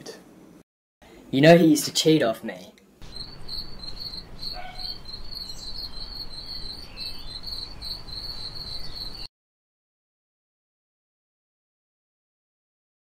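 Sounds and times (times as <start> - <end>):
cricket chirping: 3.0 - 9.3.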